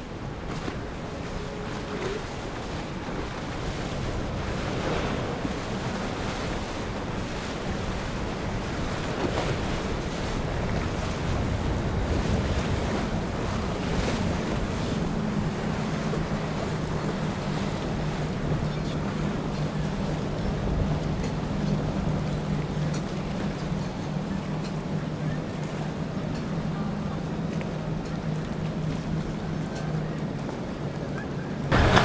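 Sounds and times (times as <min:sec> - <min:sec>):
wind on microphone: 0:00.0 - 0:23.9
outboard motor running: 0:00.0 - 0:32.0
water rushing off boat hull: 0:00.0 - 0:32.0.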